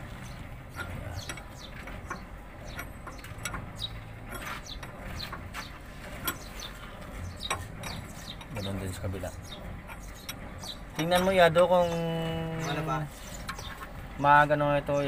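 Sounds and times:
wrench clicking and scraping on metal: 9.8 - 12.0.

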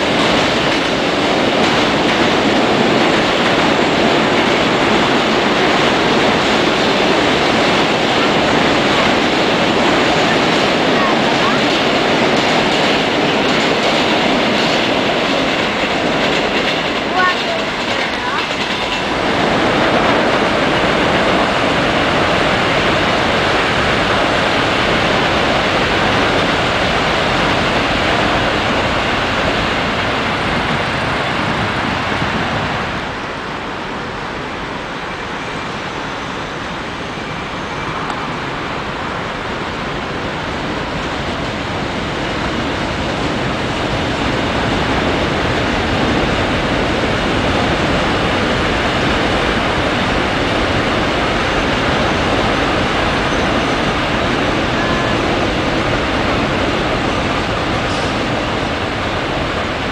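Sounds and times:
passing trains roaring: 0.0 - 59.9.

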